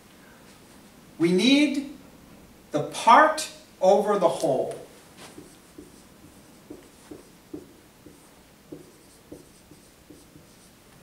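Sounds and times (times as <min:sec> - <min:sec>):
marker squeaking on whiteboard: 0:05.2 - 0:10.7.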